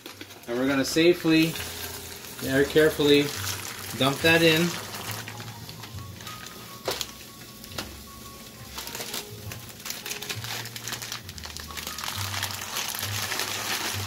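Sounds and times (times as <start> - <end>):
dry pasta pouring into pot: 0.0 - 5.5, 9.8 - 14.0
plastic bag crinkling: 0.0 - 7.8, 8.6 - 14.0
quiet background music: 0.0 - 14.0.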